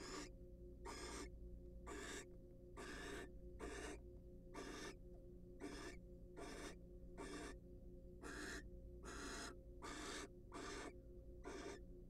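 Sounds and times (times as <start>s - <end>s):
owl hissing calls: 0.0s - 0.3s, 0.9s - 1.3s, 1.9s - 4.0s, 4.6s - 5.0s, 5.6s - 7.6s, 8.2s - 11.8s.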